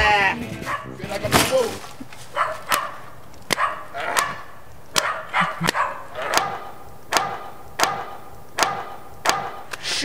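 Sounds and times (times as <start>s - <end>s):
dog barking: 0.7s - 1.0s, 2.3s - 9.6s.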